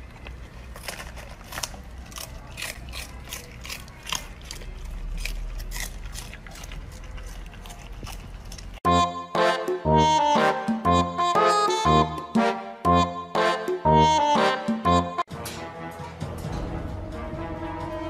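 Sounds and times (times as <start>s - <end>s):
puppy chewing crunchy leaves: 0.0s - 9.6s.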